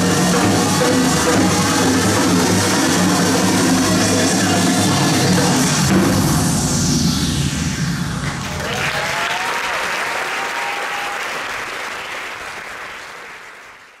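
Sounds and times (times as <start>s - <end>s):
audience applauding and cheering: 0.0s - 5.0s, 8.3s - 14.0s
person whooping: 8.6s - 11.4s.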